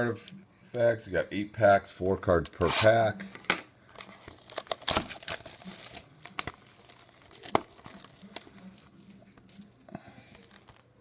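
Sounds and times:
plastic shrink wrap crinkling: 3.9 - 11.0.

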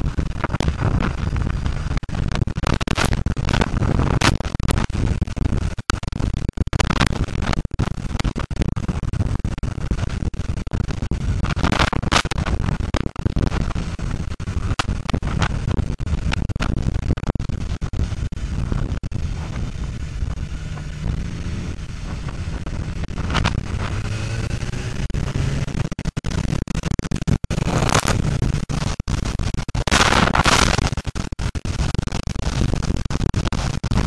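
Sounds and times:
motorcycle engine running: 0.0 - 4.3, 13.5 - 30.9
sharp crackles: 0.0 - 34.0
wind buffeting microphone: 14.7 - 25.7.

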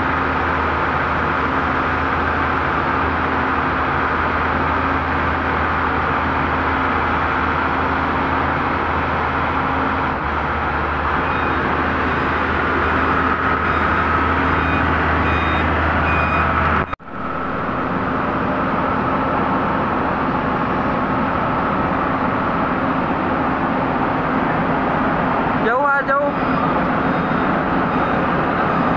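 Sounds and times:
diesel engine with deep hum: 0.0 - 28.9
steady engine drone: 0.0 - 28.9
beeping alarm: 11.2 - 12.3, 13.6 - 17.0, 26.4 - 28.9.

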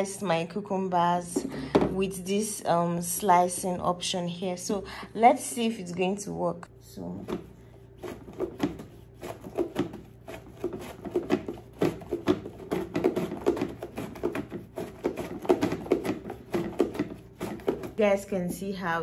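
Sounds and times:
cucumber slicing on vegetable chopper: 7.2 - 18.0.

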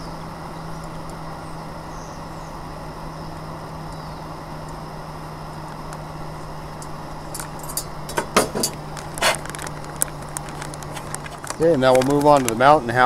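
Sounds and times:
steady low hum: 0.0 - 13.0
pouch crinkling: 8.7 - 12.6.

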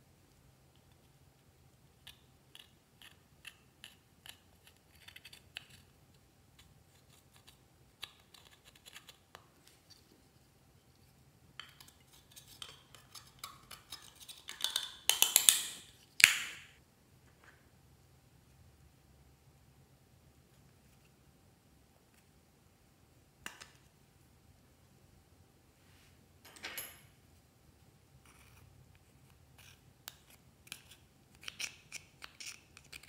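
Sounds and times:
metal tool scraping eyeshadow powder: 28.2 - 33.0.

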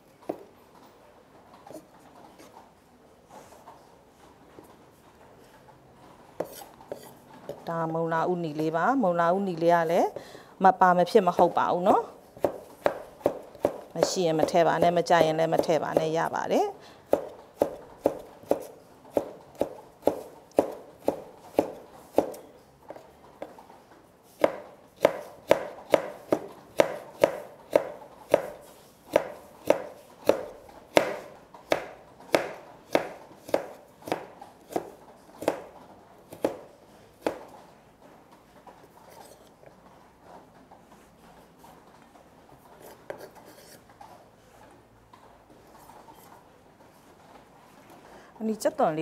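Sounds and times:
knife chopping carrot on wooden board: 6.4 - 7.1, 11.4 - 16.4, 17.1 - 23.6, 24.3 - 37.5.

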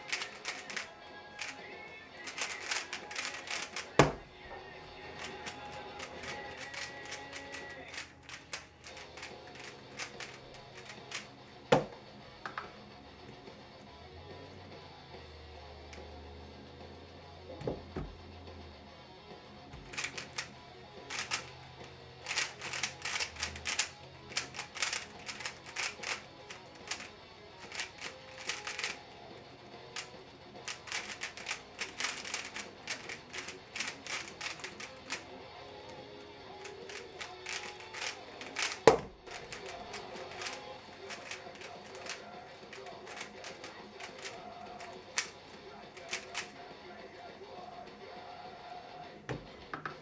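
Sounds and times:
puzzle cube clicking: 0.0 - 4.2, 5.0 - 11.4, 19.8 - 21.6, 22.2 - 29.1, 29.8 - 46.6
faint background music: 0.0 - 50.0.

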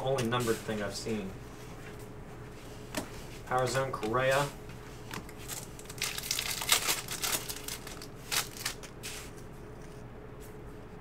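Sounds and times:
cards rustling: 2.9 - 10.1
wrapper crinkling: 5.1 - 9.3.

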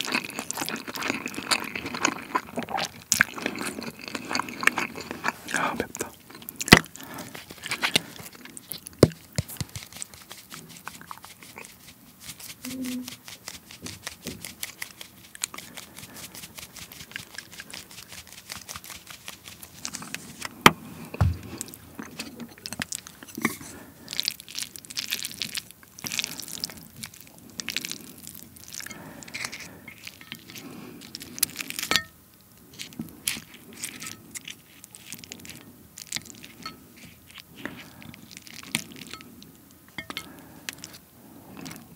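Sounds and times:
shaker bottle ticking and rattling: 9.0 - 19.8.

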